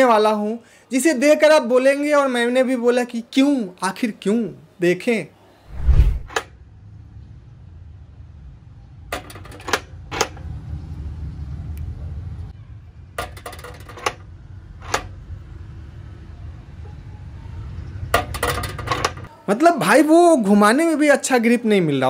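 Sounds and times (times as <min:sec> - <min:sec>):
metal sprocket and chain rattling: 0:18.2 - 0:19.3.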